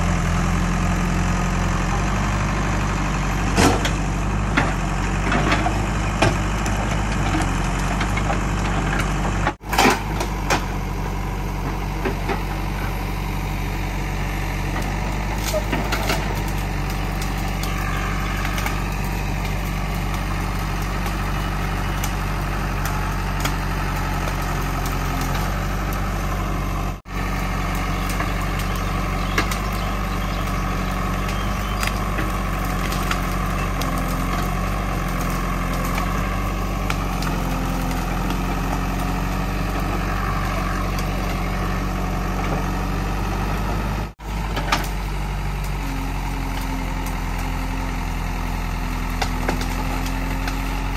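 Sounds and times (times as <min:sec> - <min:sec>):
diesel engine under load: 0:00.0 - 0:50.9.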